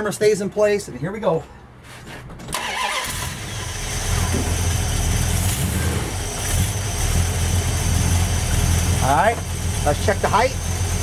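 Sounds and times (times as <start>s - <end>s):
car engine starting and idling: 2.4s - 11.0s.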